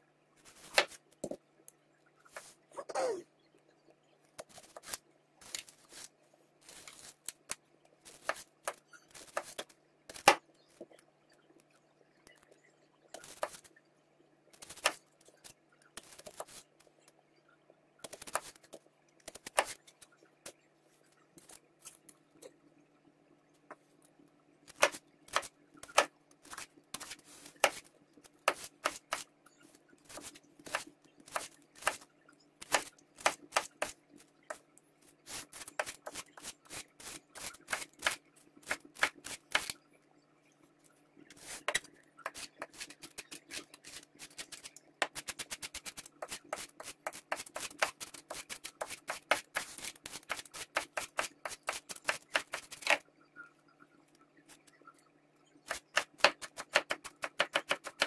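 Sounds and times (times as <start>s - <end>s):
knife chopping on cutting board: 0.7s - 1.4s, 55.7s - 58.0s.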